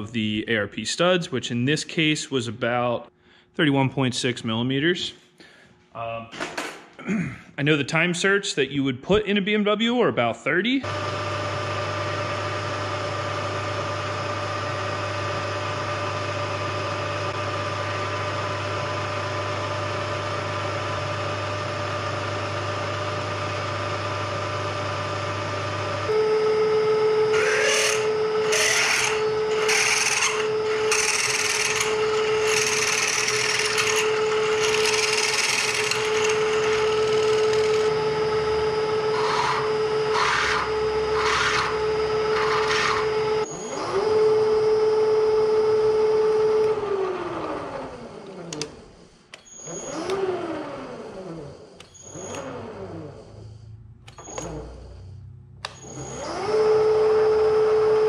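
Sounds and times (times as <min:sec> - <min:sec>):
milling machine humming: 0:10.9 - 0:49.0
spindle whining: 0:26.0 - 0:58.0
drill bit cutting metal: 0:26.1 - 0:44.6.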